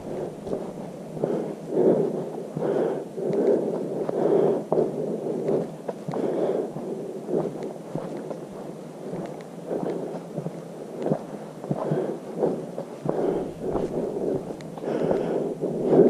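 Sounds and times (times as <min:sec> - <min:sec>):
footsteps on gravelly trail: 0:00.0 - 0:01.6, 0:05.5 - 0:16.0
heavy breathing: 0:00.0 - 0:16.0.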